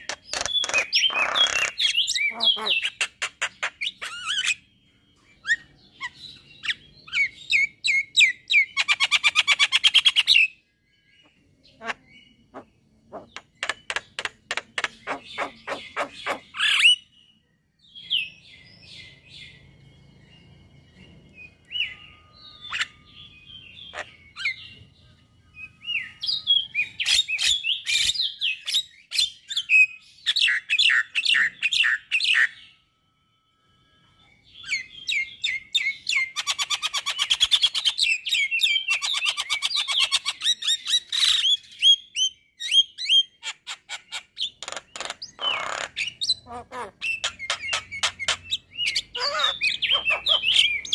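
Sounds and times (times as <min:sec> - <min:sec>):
bird chattering and clicking: 0:00.0 - 0:04.0, 0:13.1 - 0:16.5, 0:43.9 - 0:46.1.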